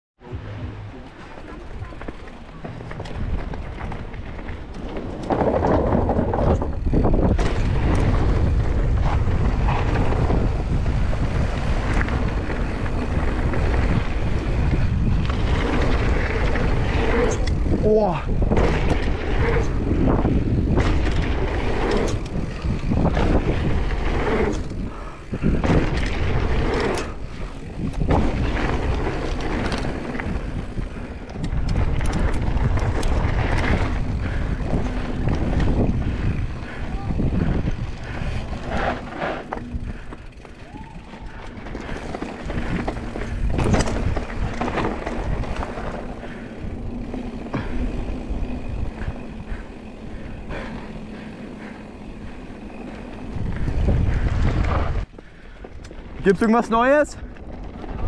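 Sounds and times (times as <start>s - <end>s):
tyres on dirt and gravel: 0.2s - 58.0s
bike rattling and knocking: 1.1s - 58.0s
wind rushing over helmet: 53.0s - 55.1s.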